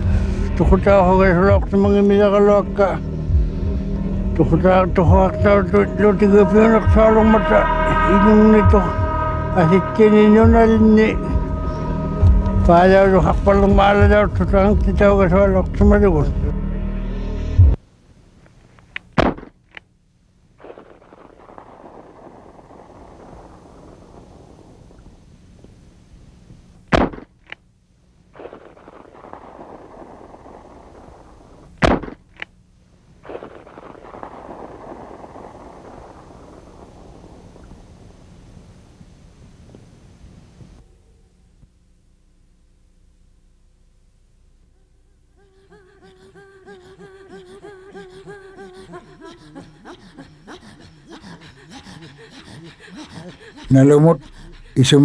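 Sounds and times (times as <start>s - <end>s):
throat singing pulsing tone: 0.0s - 17.8s
faint sharp crack: 18.8s - 19.9s, 31.7s - 32.5s.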